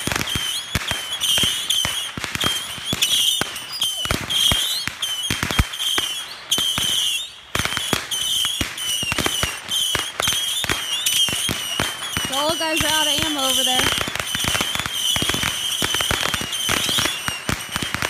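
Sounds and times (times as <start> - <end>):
fireworks popping and banging: 0.0 - 18.0.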